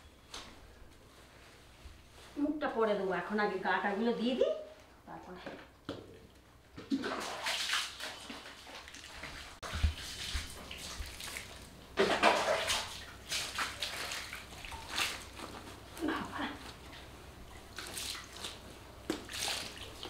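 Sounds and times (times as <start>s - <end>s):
water splashing onto tiled floor: 6.8s - 16.1s, 17.7s - 20.0s.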